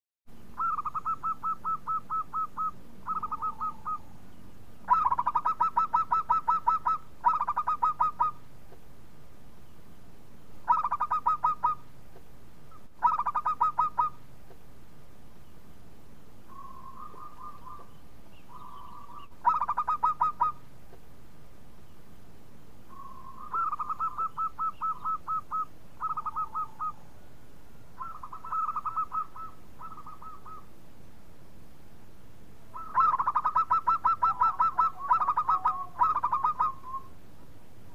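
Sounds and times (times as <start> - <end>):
dove cooing: 0.6 - 4.1, 4.9 - 8.4, 10.6 - 11.8, 12.7 - 14.2, 16.5 - 20.6, 22.9 - 27.3, 28.0 - 30.7, 32.7 - 37.2.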